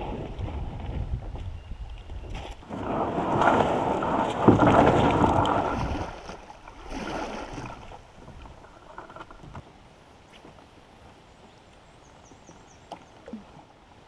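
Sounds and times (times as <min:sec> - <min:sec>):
water and paddle sounds: 0:00.0 - 0:14.0
kayak hull scraping over gravel: 0:02.2 - 0:09.4.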